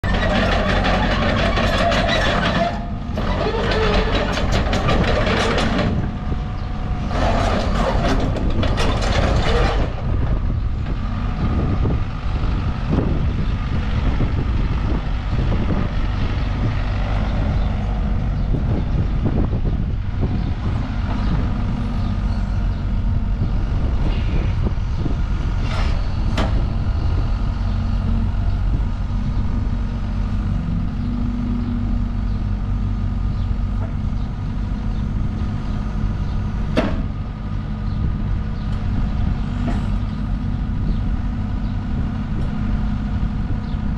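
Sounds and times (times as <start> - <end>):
excavator diesel engine: 0.0 - 43.9
knocks and clanks: 0.1 - 6.2, 7.1 - 10.1, 36.7 - 37.2.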